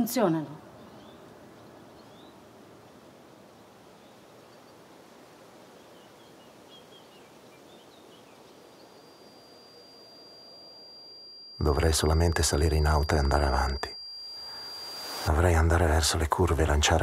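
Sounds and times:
background hiss: 0.0s - 17.0s
distant bird chirps: 0.6s - 15.6s
thin high steady tone: 6.8s - 17.0s.

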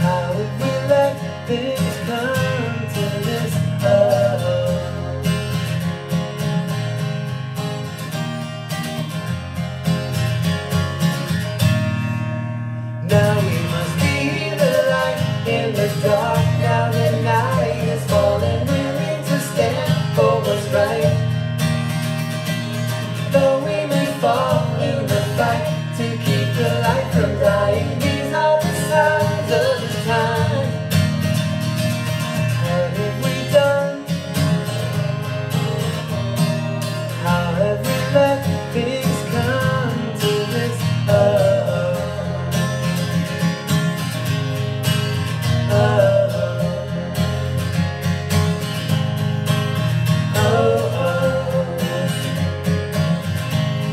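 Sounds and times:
people singing: 0.0s - 5.6s, 13.0s - 21.8s, 22.9s - 31.1s, 32.4s - 43.3s, 45.4s - 47.9s, 50.1s - 53.9s
strummed acoustic guitar: 0.0s - 53.9s.

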